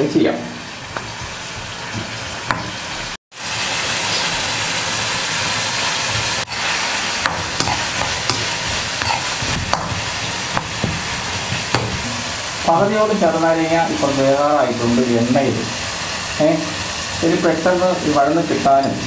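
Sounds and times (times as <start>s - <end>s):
lemons sizzling in hot oil: 0.0s - 19.0s
metal spoon scraping a pan: 6.5s - 12.3s.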